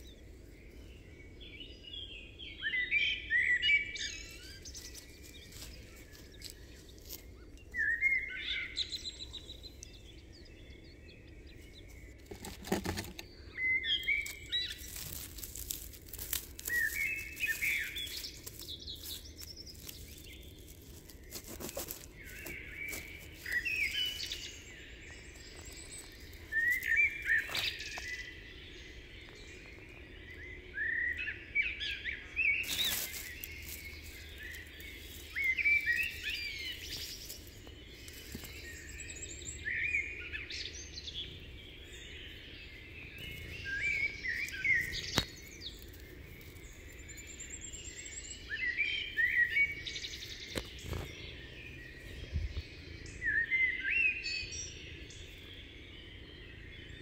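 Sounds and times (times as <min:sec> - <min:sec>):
songbird chirping: 0:00.0 - 0:57.0
sharp crackles: 0:14.1 - 0:24.4, 0:32.6 - 0:38.8.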